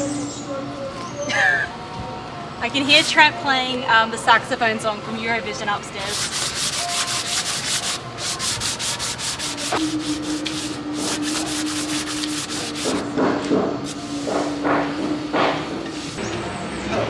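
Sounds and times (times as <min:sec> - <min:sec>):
sandpaper rubbing by hand: 0:06.0 - 0:13.1.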